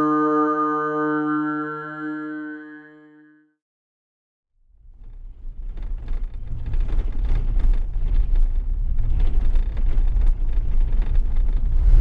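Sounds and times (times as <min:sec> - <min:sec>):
car driving on dirt track: 0:04.8 - 0:12.0
rattles and knocks: 0:04.9 - 0:11.8.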